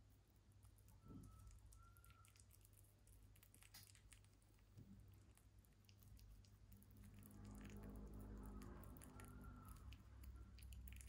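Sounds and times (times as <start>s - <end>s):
low background hum: 0.0s - 11.0s
rabbit chewing and licking: 0.0s - 11.0s.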